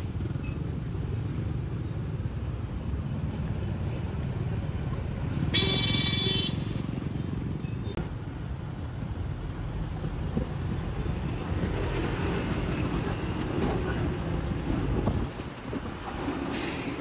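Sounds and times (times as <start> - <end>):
city street traffic rumble: 0.0 - 17.0
vehicle horn honking: 5.5 - 6.8.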